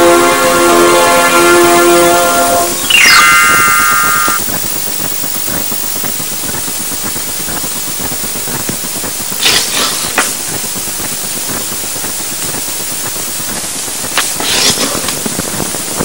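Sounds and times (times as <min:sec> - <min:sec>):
high whistle-like tone chord: 0:00.0 - 0:04.4
steady hiss: 0:00.0 - 0:16.0.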